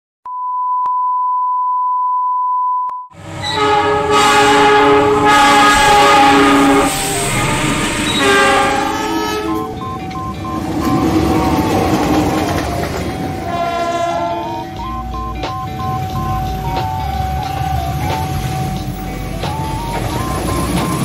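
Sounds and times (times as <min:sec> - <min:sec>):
locomotive horn: 0:03.2 - 0:15.2
train rumble: 0:03.2 - 0:21.0
high test tone: 0:05.2 - 0:21.0.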